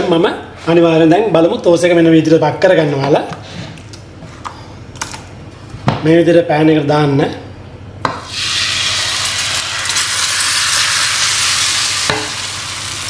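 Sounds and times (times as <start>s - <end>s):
batter sizzling in a pan: 8.3s - 13.0s.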